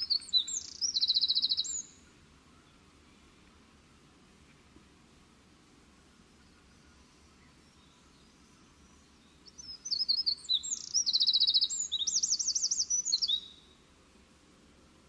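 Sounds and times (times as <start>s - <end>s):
songbird trilling song: 0.0s - 3.6s, 6.1s - 13.9s.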